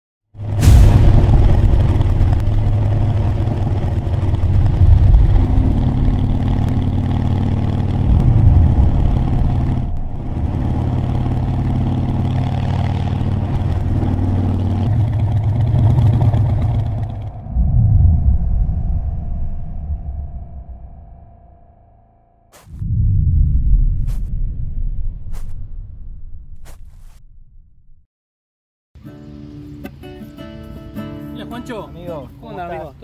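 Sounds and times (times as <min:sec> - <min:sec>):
motorcycle engine running: 0:00.4 - 0:17.4.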